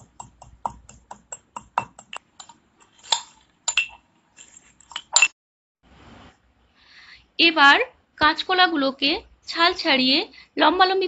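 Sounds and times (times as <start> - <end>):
pestle clinking in metal mortar: 0.0 - 4.0.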